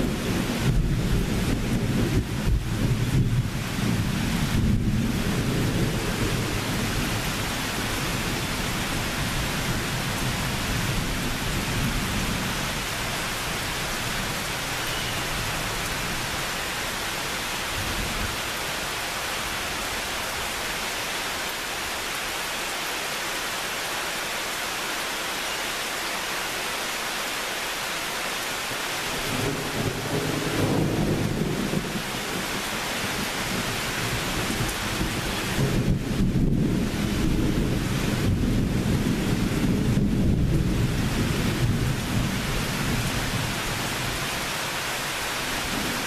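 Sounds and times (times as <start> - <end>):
thunder rumbling: 0.0 - 12.7, 29.1 - 44.2
steady rain falling: 0.0 - 46.0.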